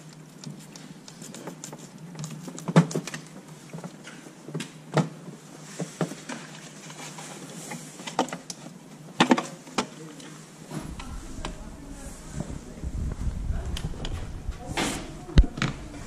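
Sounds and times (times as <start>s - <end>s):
steady low hum: 10.5s - 16.0s.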